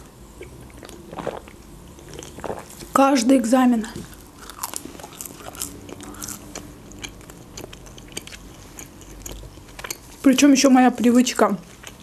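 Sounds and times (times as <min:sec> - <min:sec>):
chewing bread with wet crunches: 0:00.0 - 0:03.0, 0:04.0 - 0:10.3, 0:11.6 - 0:12.0.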